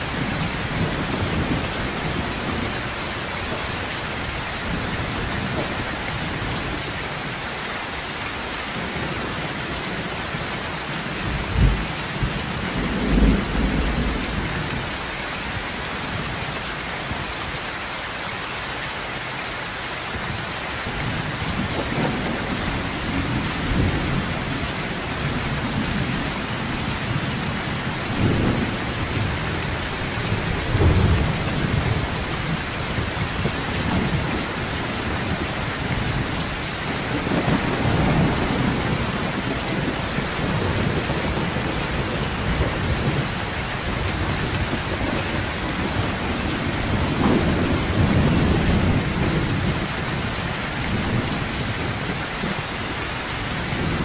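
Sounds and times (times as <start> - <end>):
heavy rain: 0.0 - 54.0
low rolls of thunder: 11.3 - 15.0, 21.0 - 52.6.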